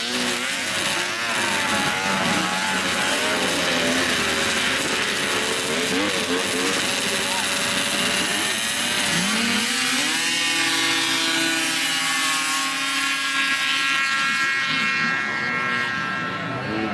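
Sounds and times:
snowmobile engines revving: 0.0 - 16.9.

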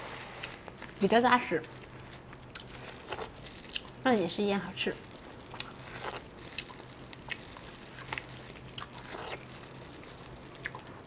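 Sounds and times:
crab shell cracking: 5.4 - 11.0.

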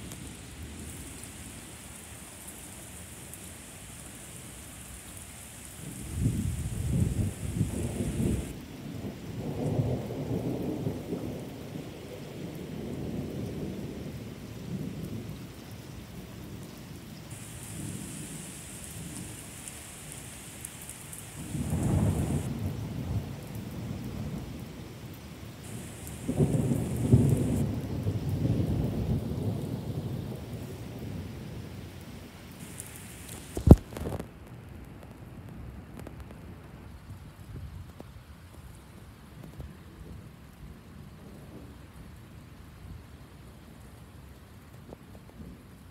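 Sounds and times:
rain falling on pavement: 0.0 - 45.9
thunder rumbling: 5.8 - 11.5, 17.3 - 24.9, 25.6 - 31.8.

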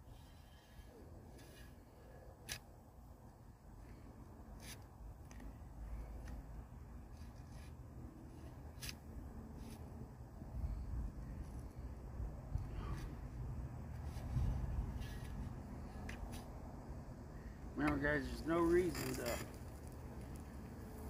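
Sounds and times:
shovel scraping and crunching soil: 0.2 - 2.7, 4.5 - 5.6, 7.0 - 10.0, 13.9 - 16.5, 17.8 - 20.5.

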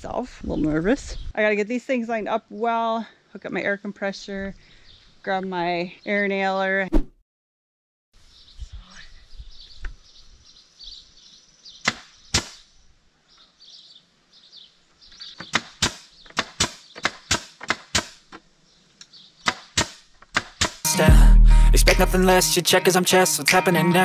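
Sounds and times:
nail gun firing: 15.4 - 18.3, 19.4 - 20.8.

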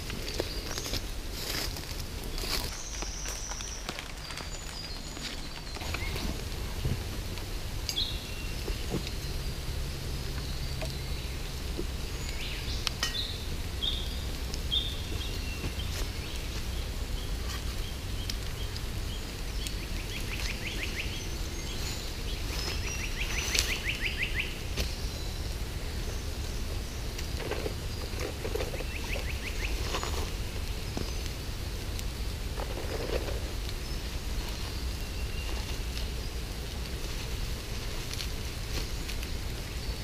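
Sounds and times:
soft rustling of bag: 0.0 - 7.3
low background noise: 0.0 - 40.0.

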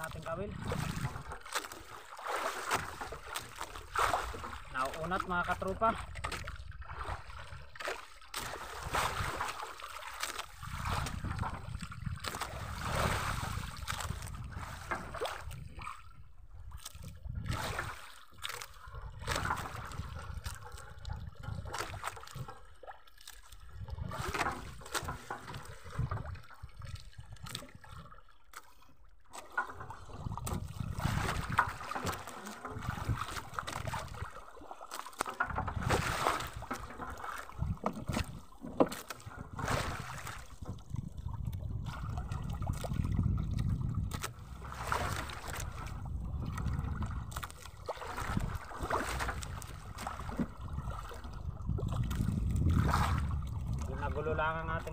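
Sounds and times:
wind rumble on microphone: 0.0 - 1.4, 8.6 - 9.5, 10.5 - 18.0, 18.9 - 22.6, 23.6 - 28.1, 29.8 - 34.3, 35.4 - 38.6, 39.2 - 54.9
water lapping against boat hull: 0.0 - 54.9.

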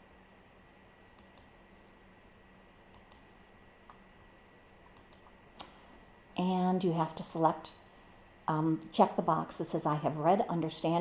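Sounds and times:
low steady hum: 0.0 - 11.0
computer mouse clicks: 1.2 - 1.5, 2.9 - 4.0, 4.9 - 5.8.

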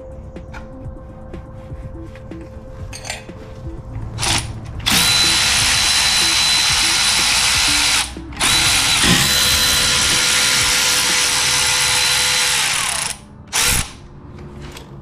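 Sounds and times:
power tool whirring: 4.2 - 14.0.

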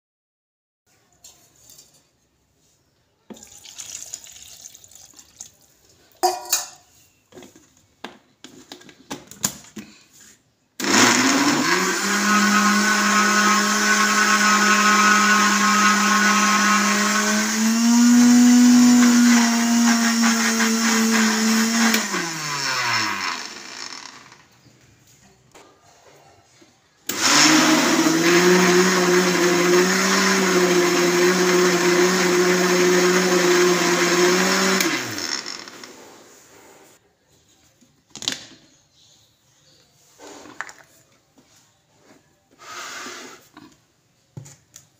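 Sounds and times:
electric blender motor whining: 10.8 - 24.4, 27.1 - 36.0.

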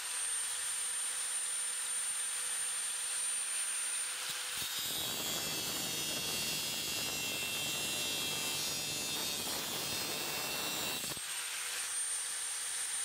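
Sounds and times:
angle grinder whining: 3.8 - 12.2
grinding of metal: 4.6 - 11.2.

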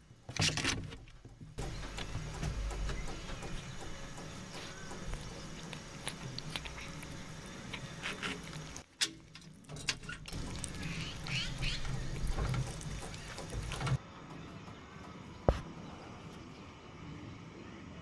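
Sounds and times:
cat chewing and lip-smacking: 1.8 - 9.6, 10.2 - 14.0.

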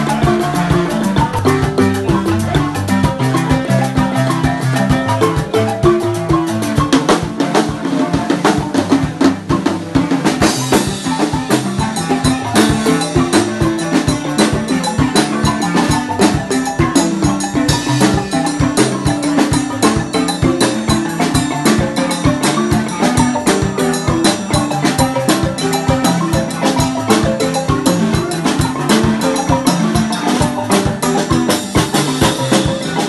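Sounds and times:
drum kit beat: 0.0 - 33.0
marimbas playing: 0.0 - 33.0.

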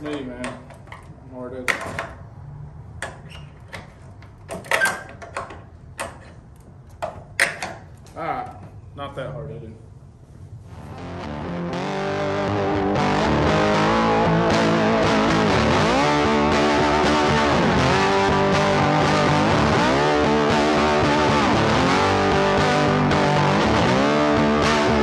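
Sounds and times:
rock music with electric guitar: 10.8 - 25.0.

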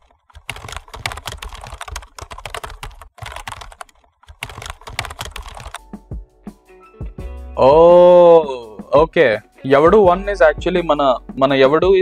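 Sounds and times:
typing on computer keyboard: 0.0 - 5.8.

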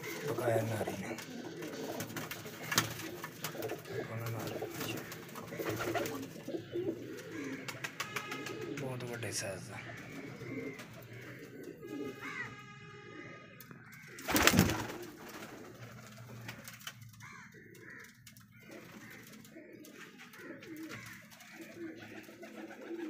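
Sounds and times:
pigeons cooing: 0.0 - 23.0.

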